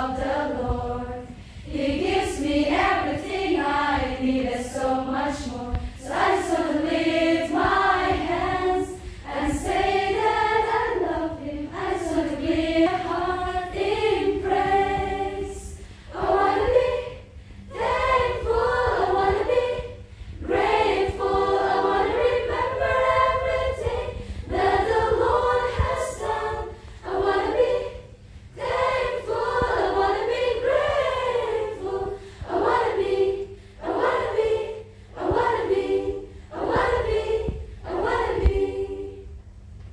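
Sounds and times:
women singing together: 0.0s - 39.4s.

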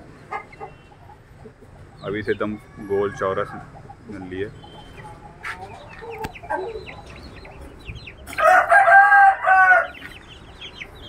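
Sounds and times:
chicks peeping: 0.1s - 11.0s
rooster crowing: 8.3s - 10.1s.

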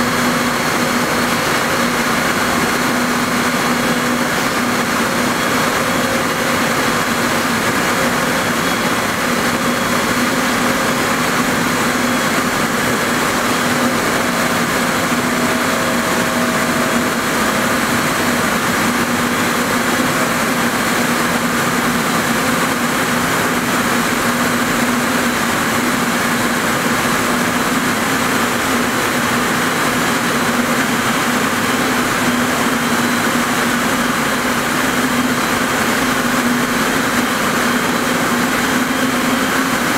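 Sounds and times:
spinning machines humming and hissing: 0.0s - 39.9s.

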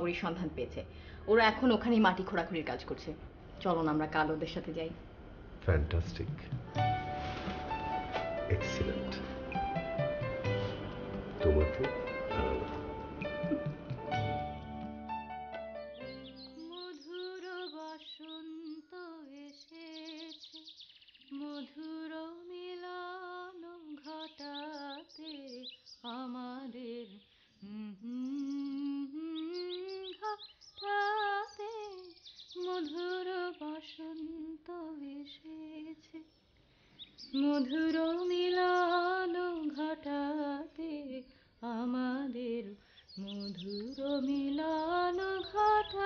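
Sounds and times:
woman humming: 11.5s - 14.1s.

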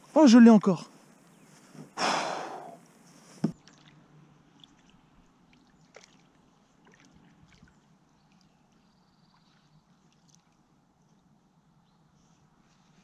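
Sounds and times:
fish splashing water: 5.6s - 7.7s.

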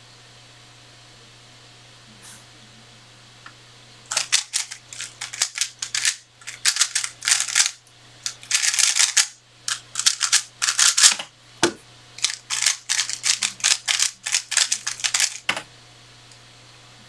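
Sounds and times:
plastic puzzle cube clicking: 4.1s - 11.2s, 12.2s - 15.6s.

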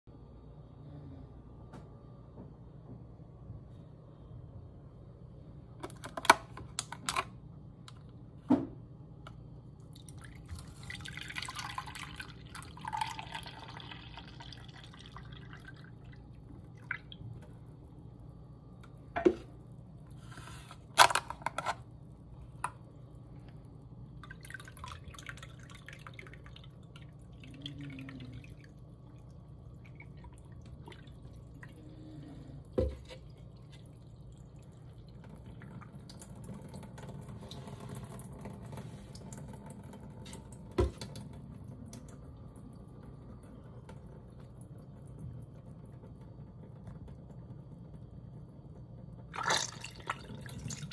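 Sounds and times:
dripping liquid: 9.7s - 19.9s, 22.0s - 50.9s
liquid pouring and trickling: 9.8s - 18.4s, 21.8s - 47.5s, 49.2s - 50.9s.

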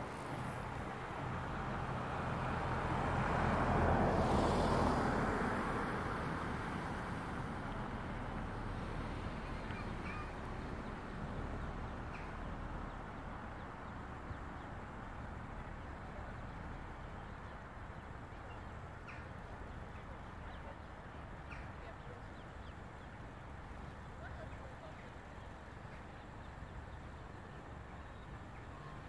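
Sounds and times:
faint distant voices: 6.8s - 29.0s.

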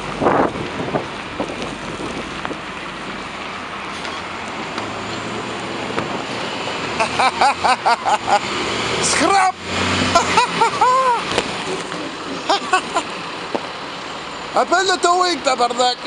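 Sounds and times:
wind noise: 0.0s - 4.4s
bus engine droning: 0.0s - 16.0s.

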